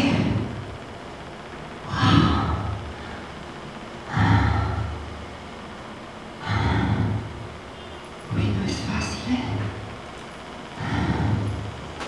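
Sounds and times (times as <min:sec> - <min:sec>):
woman breathing heavily: 0:01.9 - 0:03.4, 0:04.0 - 0:05.3, 0:06.4 - 0:07.5, 0:10.7 - 0:11.8.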